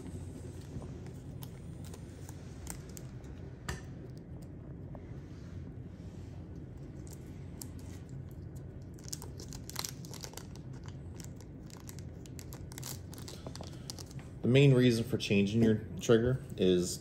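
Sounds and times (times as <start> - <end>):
plastic bag crinkling and tearing: 7.0 - 14.2.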